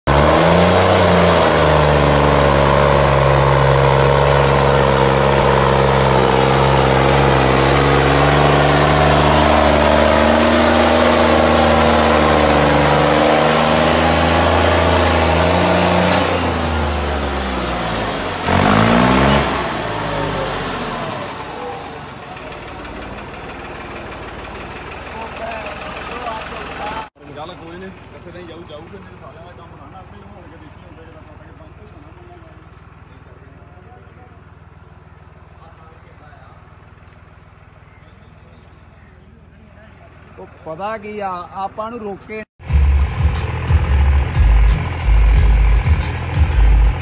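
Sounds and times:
tractor diesel engine running: 0.0s - 47.0s
tractor engine rev: 0.0s - 47.0s.

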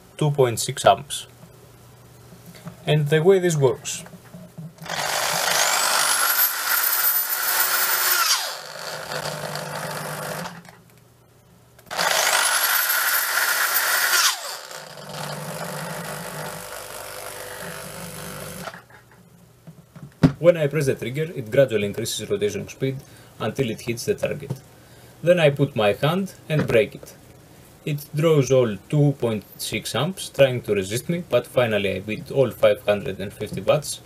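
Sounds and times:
electric drill whining: 4.8s - 10.8s, 11.9s - 18.8s.

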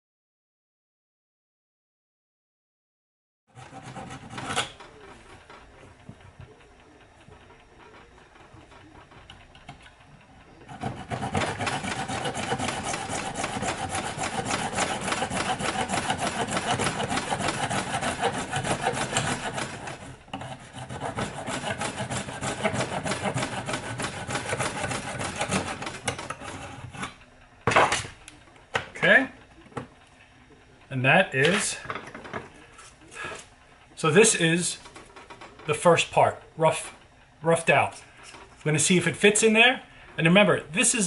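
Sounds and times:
hand saw cutting plastic pipe: 3.5s - 4.9s, 10.7s - 27.2s.

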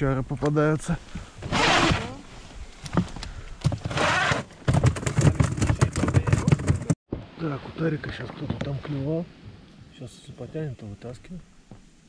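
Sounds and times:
gear knocking and clattering in boat: 4.6s - 7.0s.

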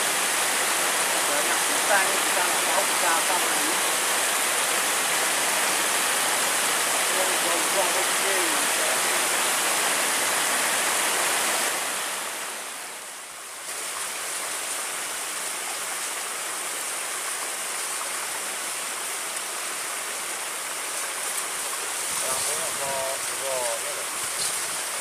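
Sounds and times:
rushing river water: 0.0s - 25.0s.

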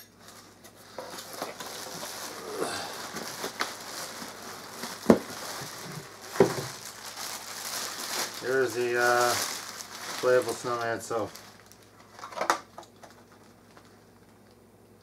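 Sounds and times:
plastic wrapping crinkling: 0.2s - 14.6s
cardboard box rustling: 0.8s - 10.5s.

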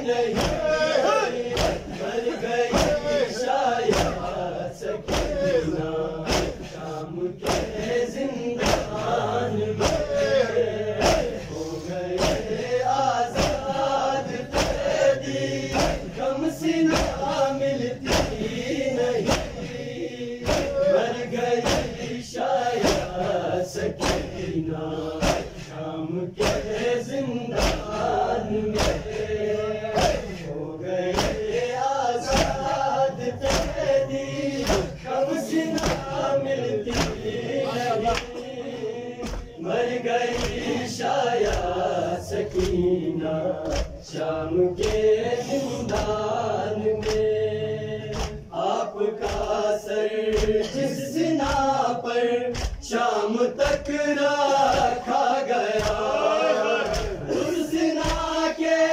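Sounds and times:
men chanting in unison: 0.0s - 58.9s
chest-beating slaps: 0.2s - 0.8s, 1.4s - 8.0s, 8.6s - 10.4s, 11.0s - 11.4s, 12.2s - 16.2s, 16.9s - 17.4s, 18.0s - 20.9s, 21.6s - 24.5s, 25.1s - 25.8s, 26.4s - 26.8s, 27.5s - 28.1s, 28.7s - 31.6s, 32.2s - 35.0s, 35.7s - 36.2s, 36.9s - 38.5s, 39.2s - 39.6s, 40.3s - 45.1s, 45.9s - 47.3s, 48.1s - 48.5s, 49.2s - 49.6s, 50.3s - 50.8s, 52.5s - 52.9s, 53.6s - 55.1s, 55.7s - 56.2s, 56.8s - 58.4s.

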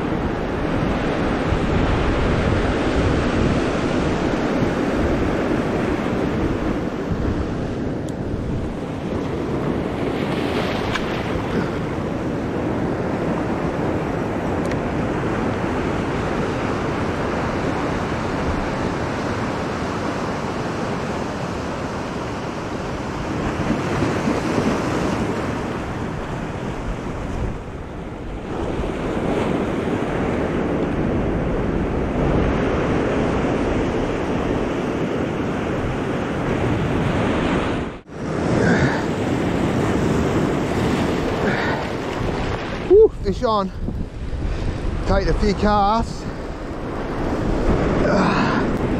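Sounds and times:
wind buffeting microphone: 0.0s - 48.9s
surf breaking on rocks: 38.2s - 48.9s.

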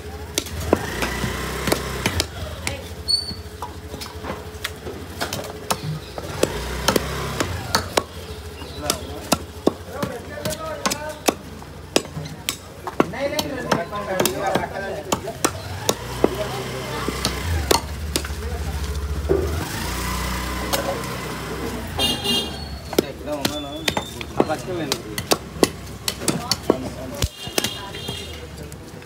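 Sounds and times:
knife chopping on wooden block: 0.3s - 2.9s, 5.2s - 18.5s, 22.0s - 28.4s
faint voices: 8.3s - 29.0s.

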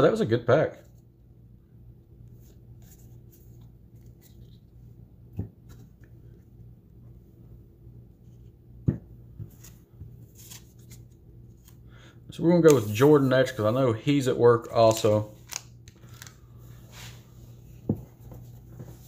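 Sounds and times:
faint steady hum: 0.0s - 19.0s
cards sliding and clicking: 9.4s - 11.8s, 12.6s - 13.2s, 14.8s - 16.4s.

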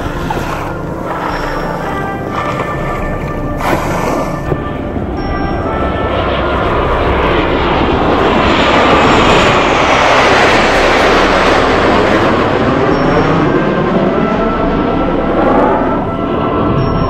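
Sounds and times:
jet engines passing overhead: 0.0s - 17.0s.

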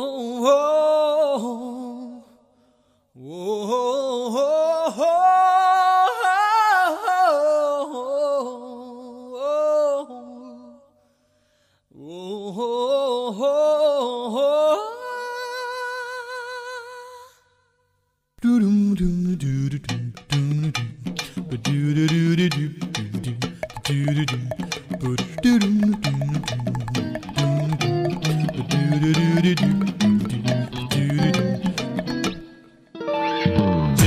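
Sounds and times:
person singing unaccompanied: 18.4s - 32.8s.

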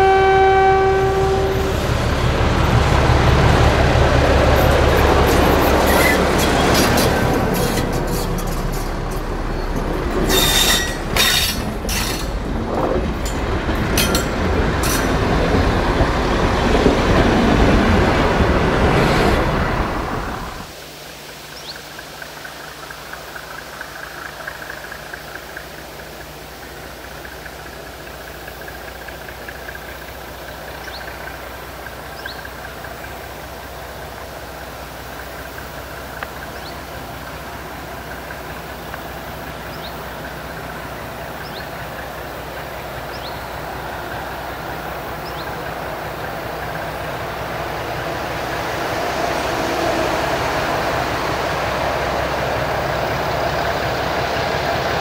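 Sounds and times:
diesel locomotive engine hum: 0.0s - 20.7s, 21.6s - 55.0s.

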